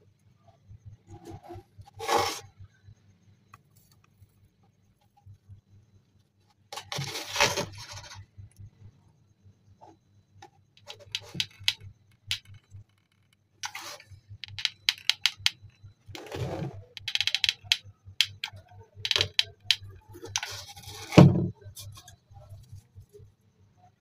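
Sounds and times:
sharp clicks and taps: 10.8 - 12.8, 13.6 - 15.8, 17.0 - 20.5
thump: 21.2 - 21.5.

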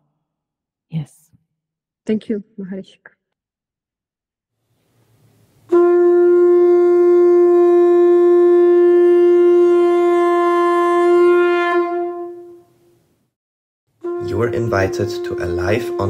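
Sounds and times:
long horn note: 5.7 - 12.6, 14.0 - 16.0.

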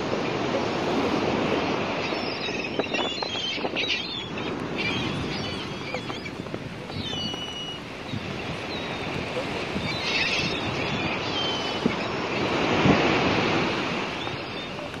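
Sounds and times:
steady wind: 0.0 - 15.0
water lapping: 0.0 - 15.0
short high bird calls: 2.0 - 12.5.

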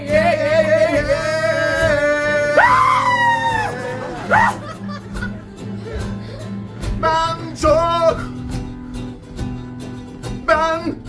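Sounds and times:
person singing: 0.0 - 4.7.

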